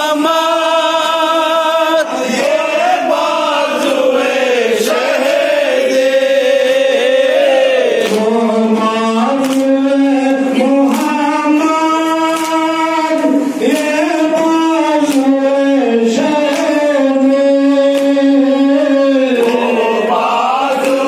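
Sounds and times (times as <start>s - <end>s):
men chanting in unison: 0.0s - 21.0s
hands slapping chests: 7.9s - 8.4s, 9.4s - 9.8s, 15.1s - 15.3s, 19.3s - 19.8s, 20.7s - 21.0s.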